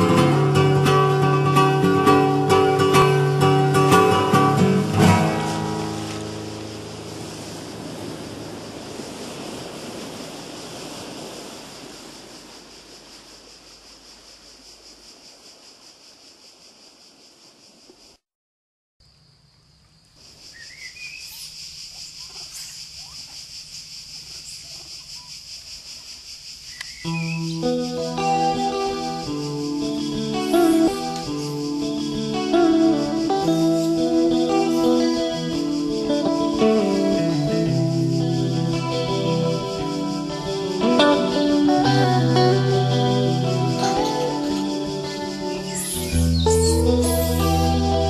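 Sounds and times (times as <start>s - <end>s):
pulsing insect drone: 0.0s - 18.2s, 19.1s - 48.0s
bird chirps: 20.5s - 21.6s, 26.7s - 27.7s, 44.0s - 47.9s
music chord: 28.0s - 35.5s, 36.3s - 48.0s.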